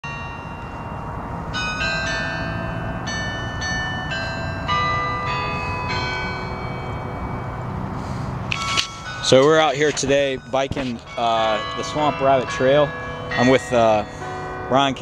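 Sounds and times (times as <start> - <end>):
carillon bells ringing: 0.0 - 15.0.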